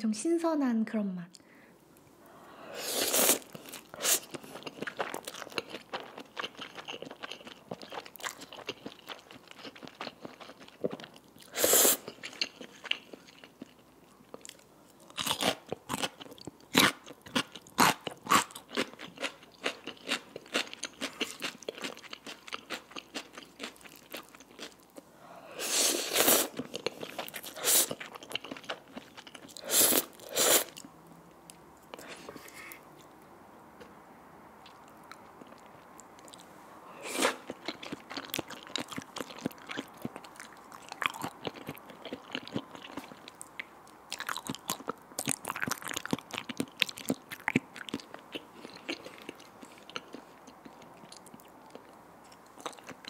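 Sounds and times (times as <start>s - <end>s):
noodles slurped: 2.8s - 5.6s, 25.6s - 28.1s, 29.5s - 30.8s
wet chewing: 3.0s - 25.1s, 25.9s - 30.9s, 37.1s - 53.0s.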